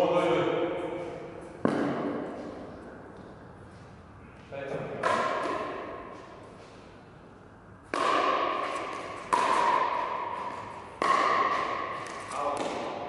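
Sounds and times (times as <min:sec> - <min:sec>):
pickleball being struck: 0:01.6 - 0:02.6, 0:05.0 - 0:06.2, 0:07.9 - 0:13.0.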